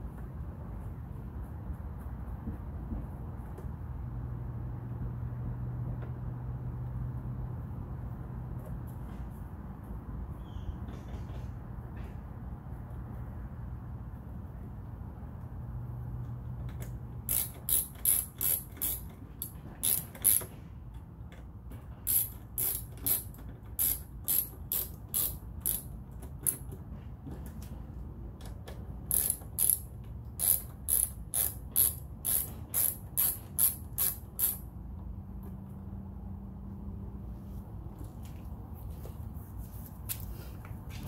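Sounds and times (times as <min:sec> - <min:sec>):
ratcheting hand tool clicking: 0:16.7 - 0:20.5, 0:22.0 - 0:26.8, 0:28.4 - 0:34.7.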